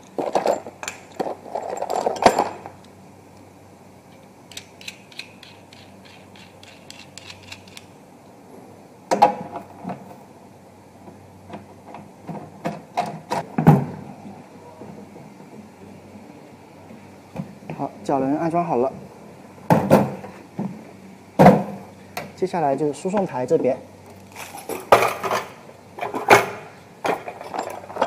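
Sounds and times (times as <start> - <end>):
rapid clicks of caster screwing: 4.1 - 7.9.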